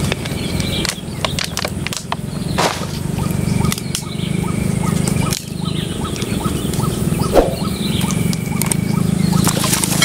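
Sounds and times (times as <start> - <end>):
low rapidly pulsing drone: 7.1 - 8.2
repeated short animal chirp: 7.2 - 8.2.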